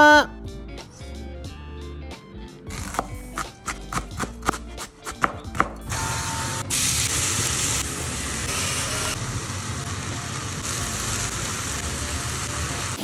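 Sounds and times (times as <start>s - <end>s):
knife chopping on plastic board: 2.8s - 5.8s
meat and vegetables sizzling in pan: 5.9s - 13.0s.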